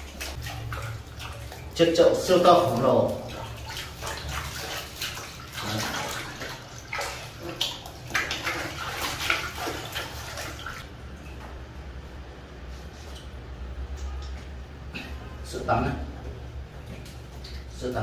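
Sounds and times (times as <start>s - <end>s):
water splashing in plastic basin: 0.0s - 11.8s.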